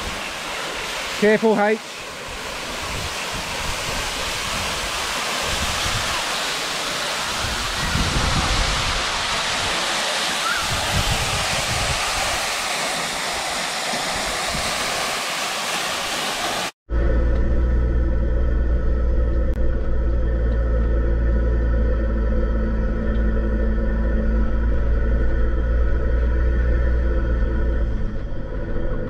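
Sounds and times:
waterfall rushing: 0.0s - 16.8s
low rumbles: 16.9s - 29.0s.

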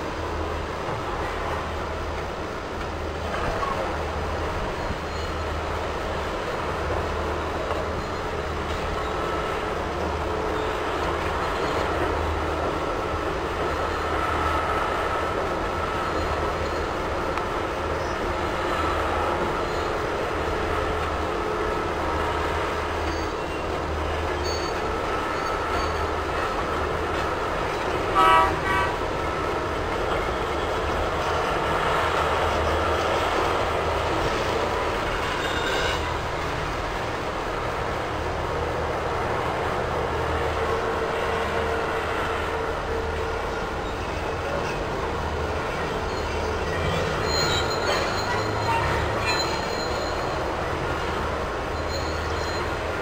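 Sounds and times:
loud horn toot: 28.1s - 29.0s.

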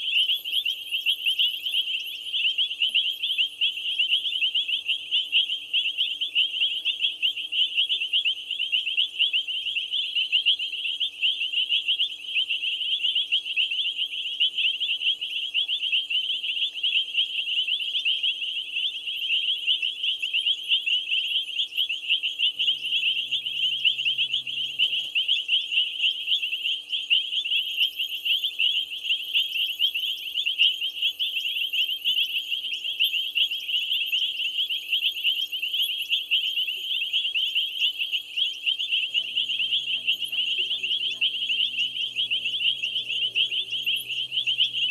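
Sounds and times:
frogs and insects chirping: 0.0s - 44.9s
faint low hum: 22.4s - 26.6s, 38.9s - 44.9s.

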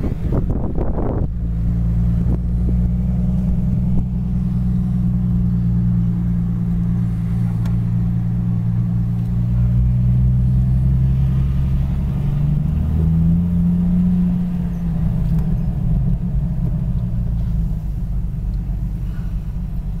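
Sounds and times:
vehicle engine rumbling: 0.0s - 20.0s.

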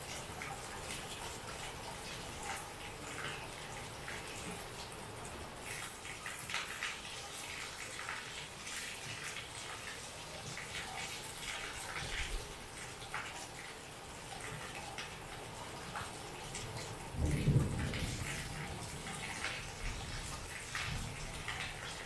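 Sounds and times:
water drips and splashes: 0.0s - 22.0s
heavy rain hissing: 16.6s - 22.0s.

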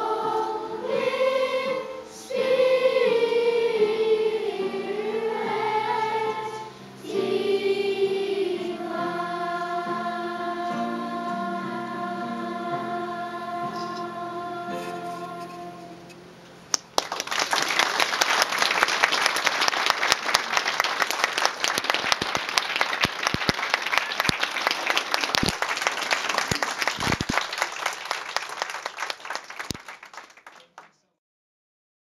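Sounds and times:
small audience applauding: 16.7s - 31.1s.

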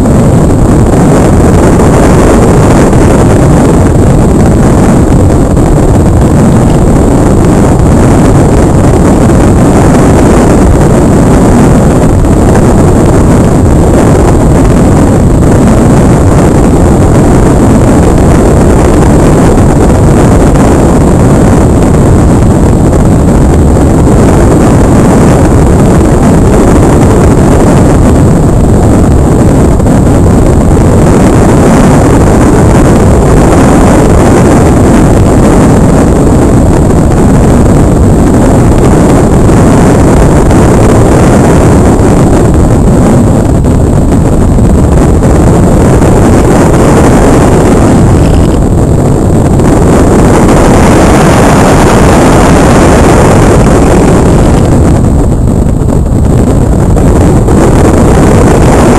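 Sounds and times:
air rushing over microphone: 0.0s - 58.9s
thin steady high whine: 0.0s - 58.9s.

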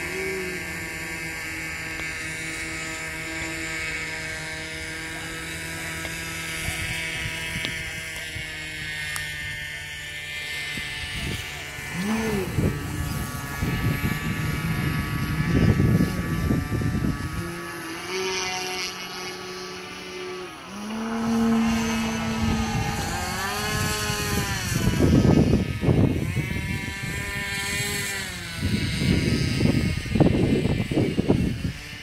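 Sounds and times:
electric propeller buzzing whine: 0.0s - 32.0s
low rumble: 20.3s - 25.9s.

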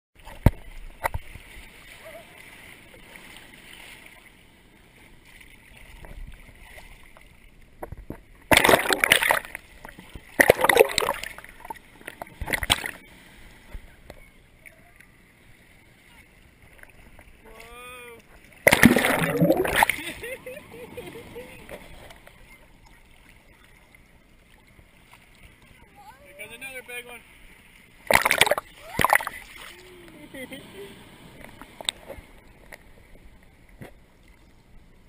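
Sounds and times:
surf splashing against camera: 0.2s - 34.4s
loud bursts of splashing: 8.5s - 9.6s, 10.3s - 11.4s, 18.6s - 20.4s, 28.1s - 29.8s.

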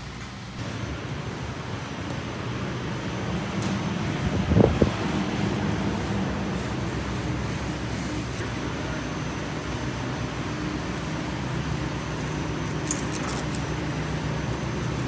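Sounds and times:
air handling hum: 0.0s - 15.0s.

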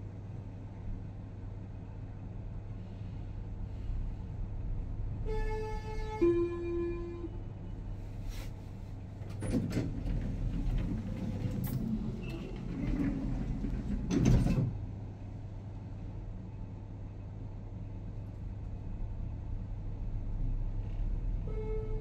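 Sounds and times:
lift doors sliding and rattling: 9.0s - 15.0s.

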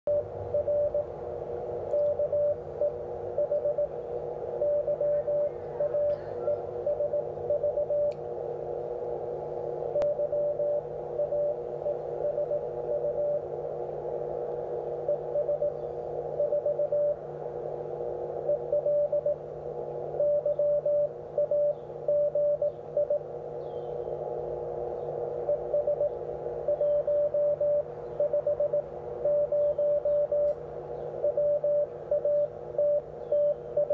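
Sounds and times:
morse code tone: 0.1s - 1.1s, 1.9s - 4.0s, 4.6s - 8.2s, 10.0s - 13.5s, 15.0s - 15.8s, 16.4s - 17.2s, 18.4s - 19.4s, 20.2s - 23.3s, 25.4s - 30.6s, 31.2s - 33.9s
steady low tone: 0.1s - 33.9s
radio band hiss: 2.7s - 7.5s.

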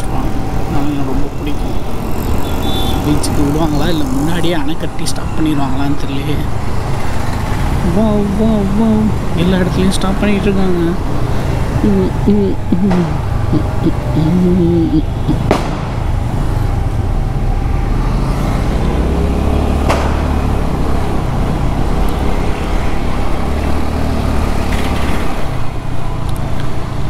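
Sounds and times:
low road rumble: 0.0s - 27.0s
passing cars: 0.0s - 27.0s.

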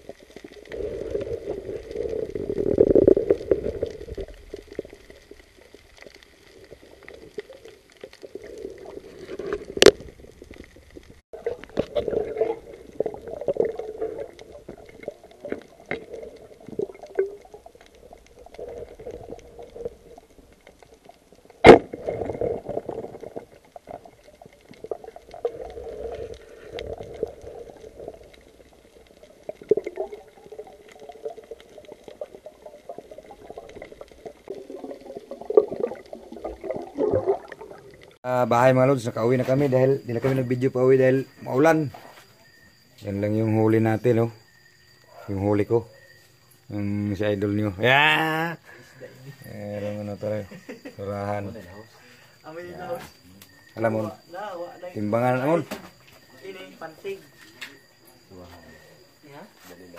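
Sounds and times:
muffled underwater sloshing: 0.0s - 38.2s.

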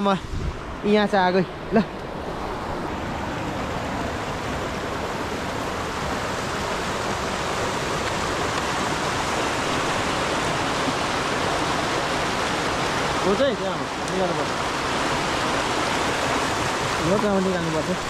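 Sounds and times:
water rushing over rocks: 0.0s - 18.0s.

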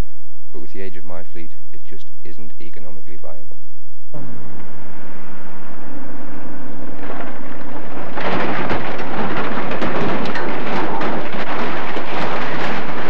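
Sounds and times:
truck crashing down a slope: 6.6s - 13.0s.

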